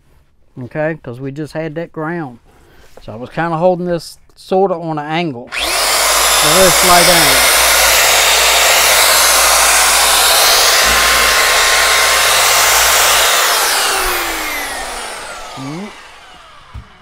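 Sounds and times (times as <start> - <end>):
wire brush scrubbing steel: 5.5 - 16.2
electric drill winding down: 5.5 - 17.0.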